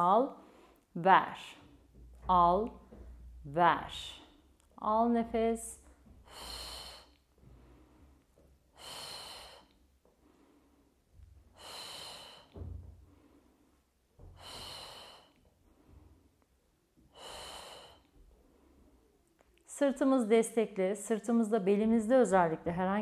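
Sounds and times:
woman breathing: 0.2s - 2.1s, 5.4s - 19.3s
soft low thump: 1.5s - 4.2s.

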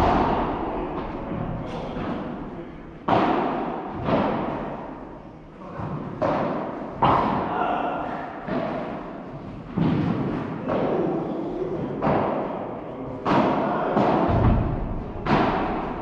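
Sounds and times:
padel ball hits echoing: 0.0s - 5.0s, 13.2s - 16.0s.

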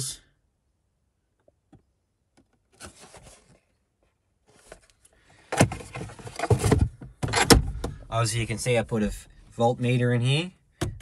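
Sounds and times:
cardboard rustle: 2.7s - 3.7s.

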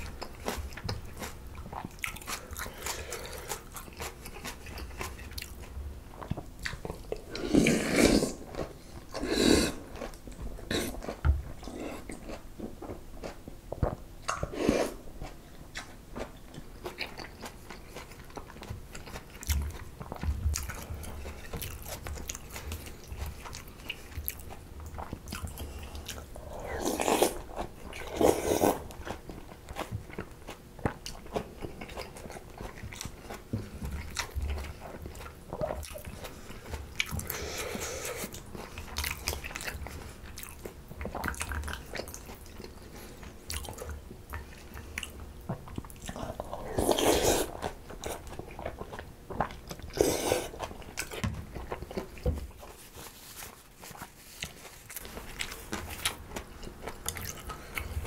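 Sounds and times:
crunchy chewing: 0.0s - 58.0s
slurping noodles: 7.2s - 10.1s, 46.2s - 48.2s, 49.9s - 50.7s.

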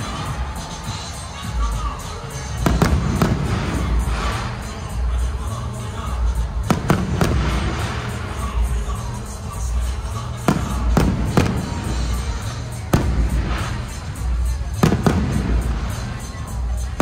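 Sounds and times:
music: 0.0s - 17.0s
firework bangs: 2.5s - 5.0s, 6.6s - 9.1s, 10.4s - 16.7s.

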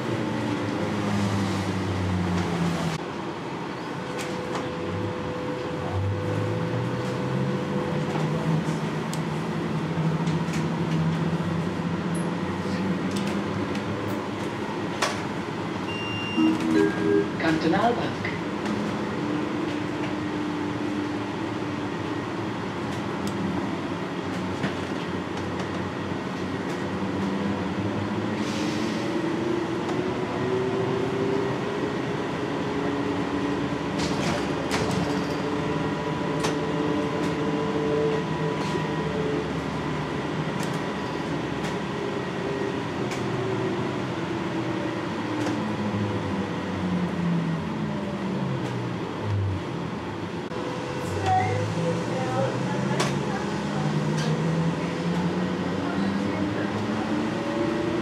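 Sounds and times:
bus body rattles and clicks: 3.9s - 4.9s, 7.8s - 15.9s, 18.1s - 28.4s, 33.7s - 38.9s, 39.5s - 44.6s, 45.2s - 45.8s, 52.9s - 55.4s
steady higher whine: 15.9s - 18.3s.

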